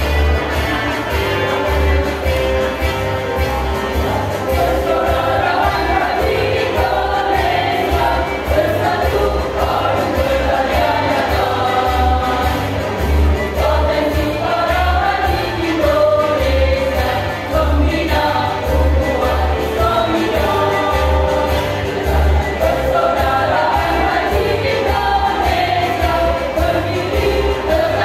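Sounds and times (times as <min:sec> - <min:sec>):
women's choir singing: 0:00.0 - 0:28.0.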